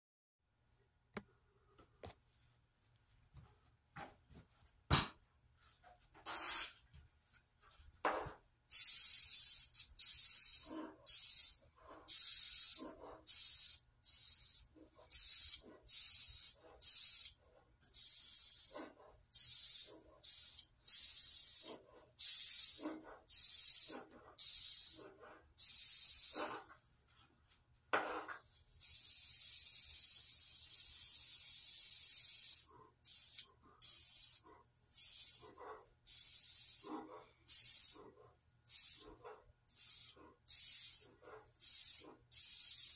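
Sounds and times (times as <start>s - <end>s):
airbrush spraying: 6.3s - 6.8s, 8.7s - 17.4s, 18.0s - 26.8s, 28.1s - 38.1s, 38.7s - 42.9s.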